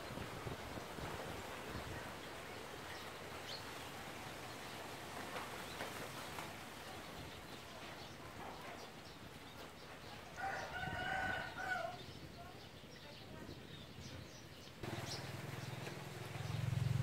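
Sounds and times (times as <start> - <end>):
rooster crowing: 10.4 - 12.0.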